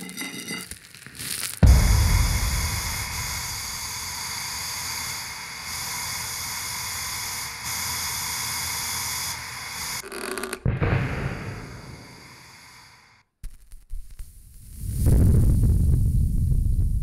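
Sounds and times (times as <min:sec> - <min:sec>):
capacitor venting hiss: 0:01.6 - 0:10.0.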